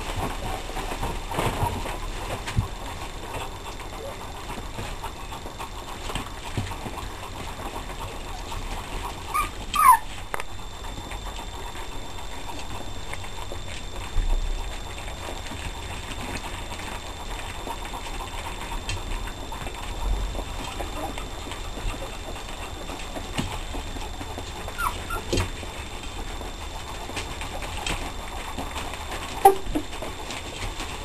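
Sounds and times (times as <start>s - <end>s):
puppies lapping and chewing: 0.0s - 31.0s
puppy squealing: 9.3s - 10.2s, 24.7s - 25.4s.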